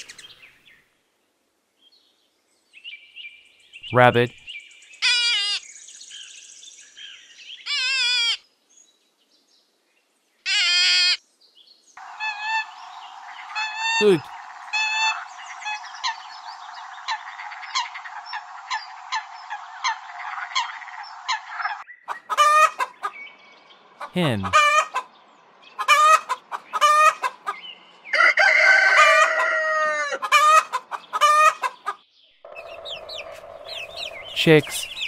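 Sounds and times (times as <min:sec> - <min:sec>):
hen clucking: 0:12.0 - 0:23.2, 0:24.0 - 0:25.1, 0:25.8 - 0:27.6, 0:28.2 - 0:35.0
rail bird calling: 0:12.0 - 0:23.2, 0:24.0 - 0:25.0, 0:29.0 - 0:35.0.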